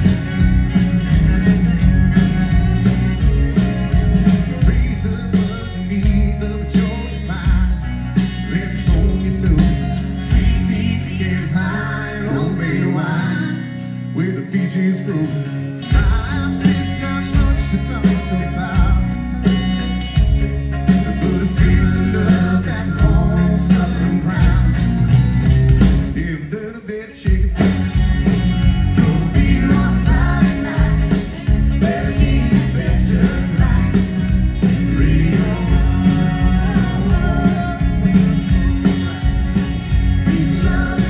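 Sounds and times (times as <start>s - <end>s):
acoustic guitar: 0.0s - 41.0s
drums: 0.0s - 41.0s
electric bass: 0.0s - 41.0s
fiddle: 27.5s - 41.0s.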